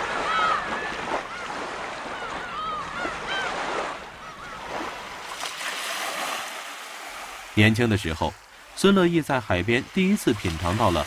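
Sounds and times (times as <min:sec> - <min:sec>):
gull calling: 0:00.0 - 0:05.1
waves washing on beach: 0:00.0 - 0:11.0.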